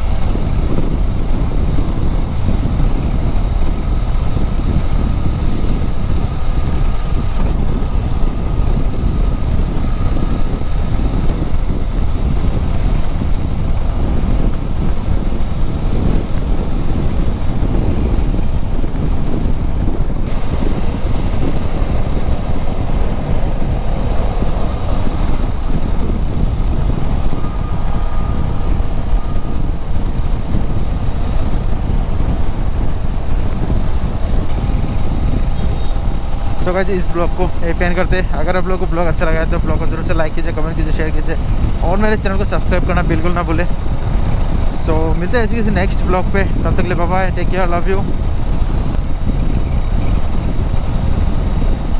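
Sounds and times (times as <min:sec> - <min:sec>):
motorcycle engine running: 0:00.0 - 0:39.6
wind rushing over microphone: 0:00.0 - 0:51.9.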